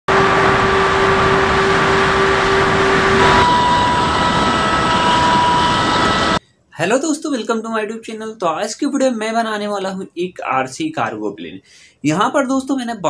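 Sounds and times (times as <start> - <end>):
electric fan whine: 0.1 - 6.4
loud wind rush: 0.1 - 6.4.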